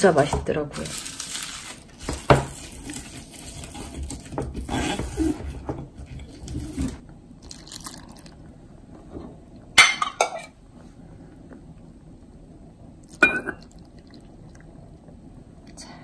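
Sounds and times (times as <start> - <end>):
faint liquid pouring: 7.4 - 8.5, 13.0 - 14.8.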